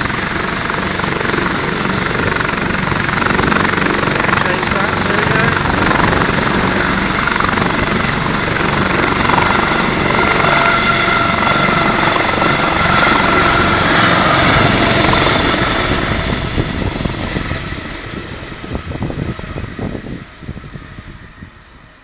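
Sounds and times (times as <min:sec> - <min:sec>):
helicopter rotor and turbine: 0:00.0 - 0:22.0.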